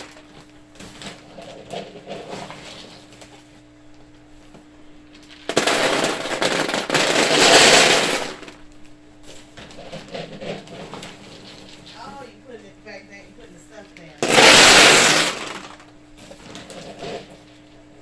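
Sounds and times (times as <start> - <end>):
pellets pouring into plastic pool: 0.0 - 3.5, 5.1 - 8.7, 14.2 - 17.7.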